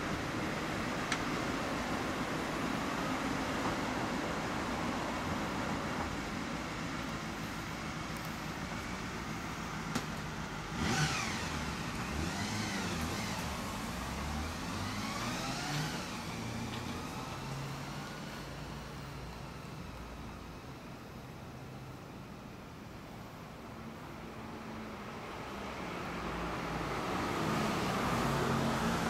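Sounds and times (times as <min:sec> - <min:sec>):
vehicle engine revving: 0:10.6 - 0:18.6.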